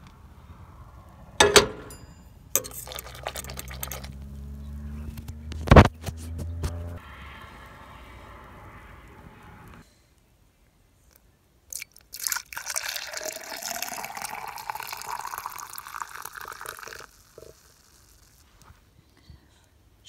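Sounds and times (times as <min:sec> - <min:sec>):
milk pouring into a cup: 0:02.6 - 0:04.2, 0:11.7 - 0:18.6.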